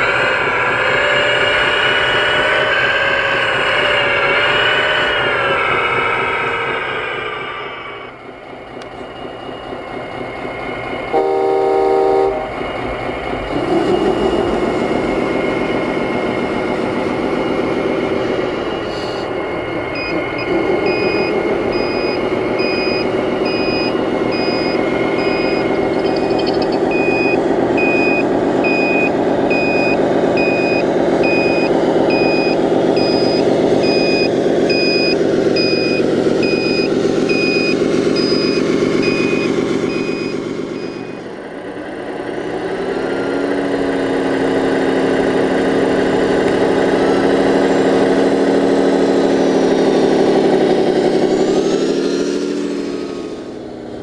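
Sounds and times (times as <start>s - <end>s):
diesel engine sound module: 0.0s - 54.0s
reversing beeper: 11.1s - 41.4s.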